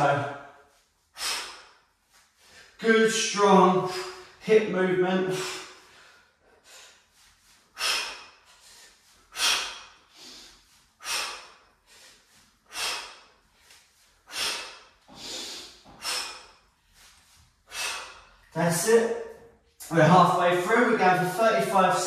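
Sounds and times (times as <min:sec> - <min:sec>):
man breathing hard: 0:00.0 - 0:02.8, 0:03.8 - 0:04.5, 0:05.2 - 0:18.6.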